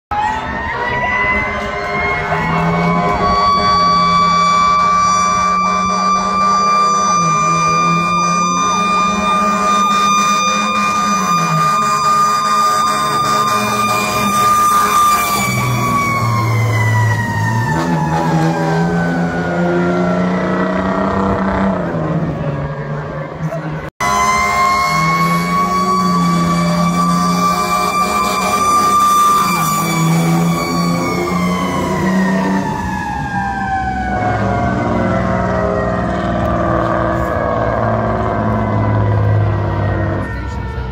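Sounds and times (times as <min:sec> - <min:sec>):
fire engine siren: 0:00.1 - 0:40.9
truck engine running low: 0:00.5 - 0:40.9.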